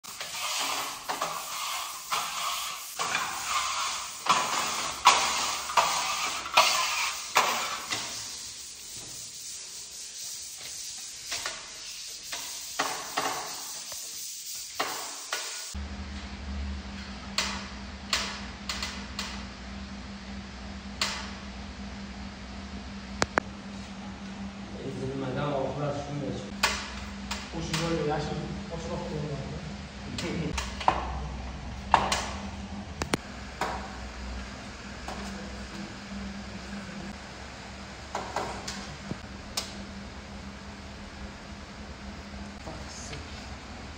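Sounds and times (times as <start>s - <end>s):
trowel scraping plaster: 0.1s - 14.2s
steady low hum: 15.7s - 43.9s.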